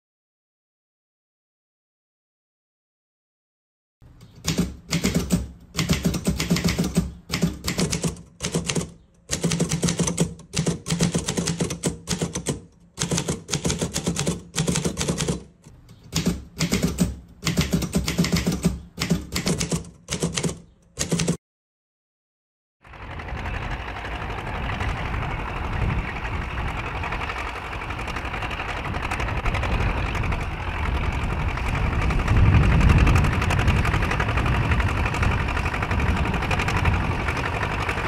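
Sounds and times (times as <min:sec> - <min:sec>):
typewriter keys clacking: 0:04.1 - 0:21.4.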